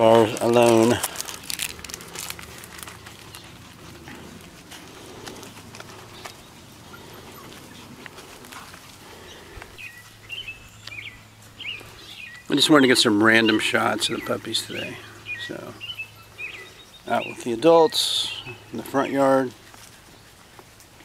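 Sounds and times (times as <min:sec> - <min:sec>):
clicks and rustles: 0:00.0 - 0:09.8.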